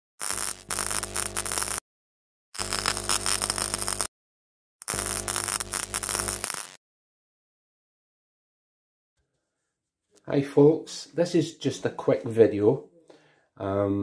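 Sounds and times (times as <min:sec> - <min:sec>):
glitchy static crackling: 0:00.2 - 0:01.8, 0:02.6 - 0:04.1, 0:04.8 - 0:06.8
low electronic buzz: 0:00.2 - 0:01.8, 0:02.6 - 0:04.1, 0:04.8 - 0:06.8.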